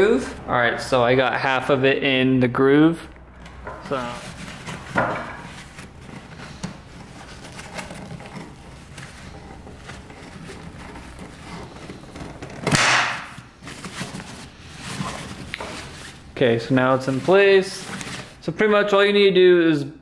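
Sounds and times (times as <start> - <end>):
filter rustling in metal canister: 3.2 - 18.4.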